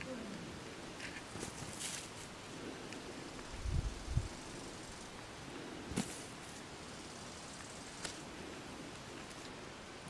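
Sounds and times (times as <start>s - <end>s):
faint steady hiss: 0.0s - 10.0s
cat pawing through dry soil: 5.9s - 6.6s.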